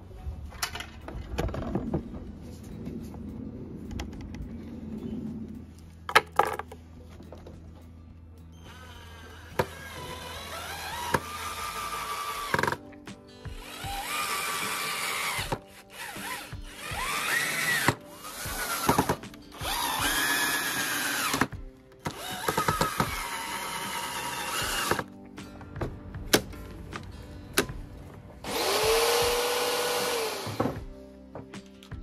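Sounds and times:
music: 0.0 - 32.0
power tool motor spinning: 8.7 - 12.8, 13.5 - 21.5, 22.1 - 25.0, 28.4 - 30.8.

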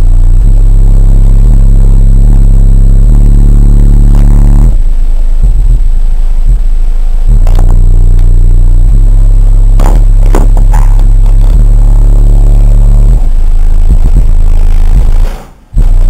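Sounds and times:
loud deep subwoofer bass notes: 0.0 - 16.0
low thumps and rattles: 7.3 - 16.0.

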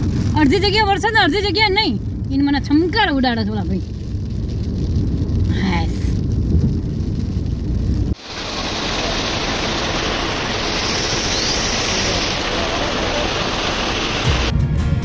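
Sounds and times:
road rumble inside moving car: 0.0 - 8.2
rain falling on wet street: 0.0 - 14.5.

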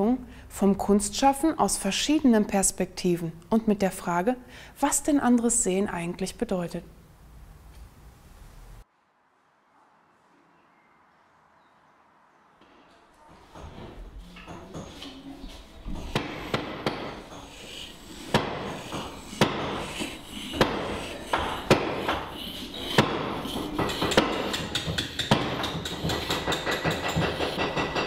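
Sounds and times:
scraping and rubbing: 13.3 - 28.0
hand tool knocks: 23.0 - 28.0.

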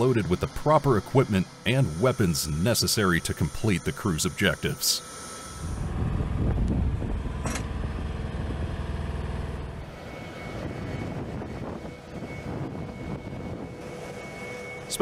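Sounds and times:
machinery with high whine: 0.0 - 15.0
engine rumbling: 5.6 - 15.0.

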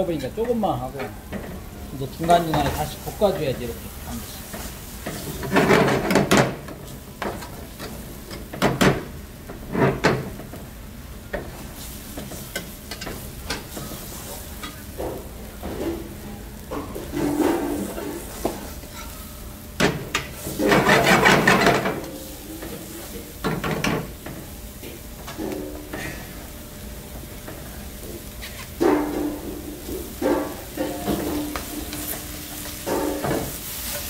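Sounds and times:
oil sizzling: 0.0 - 34.0
metal spoon scraping a frying pan: 18.9 - 19.3.

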